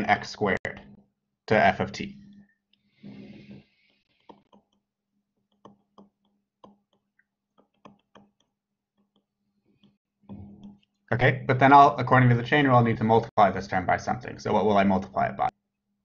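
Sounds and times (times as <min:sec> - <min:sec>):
stylus tapping tablet screen: 0:03.1 - 0:11.0.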